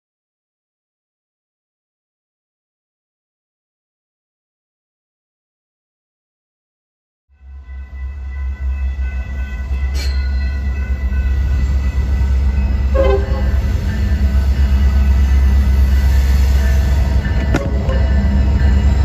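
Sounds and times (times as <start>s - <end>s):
diesel locomotive engine rumble: 7.4s - 19.0s.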